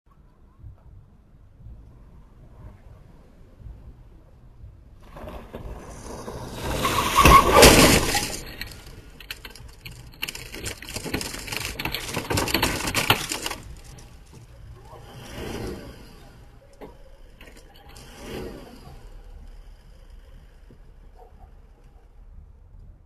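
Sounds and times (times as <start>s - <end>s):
vehicle noise: 0.1s - 23.0s
loud vehicle crash: 5.0s - 21.1s
pole cracking and clattering: 5.1s - 15.4s.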